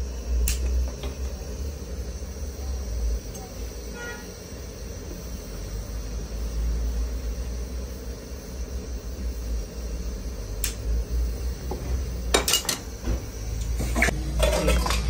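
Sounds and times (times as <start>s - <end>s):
workshop low rumble: 0.0s - 15.0s.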